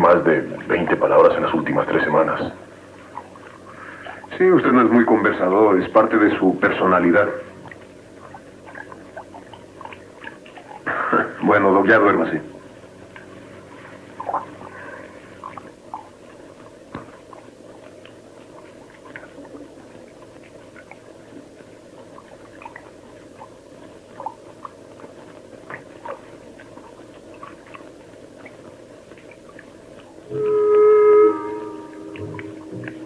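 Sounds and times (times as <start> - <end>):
background hiss: 0.0 - 33.0
small ticks and clicks: 13.0 - 30.9
held wind instrument note: 30.2 - 33.0.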